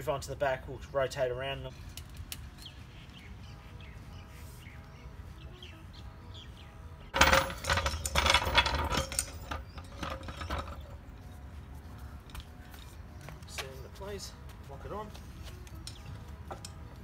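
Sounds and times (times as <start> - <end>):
jack wheels rattling on stone: 7.1 - 11.5.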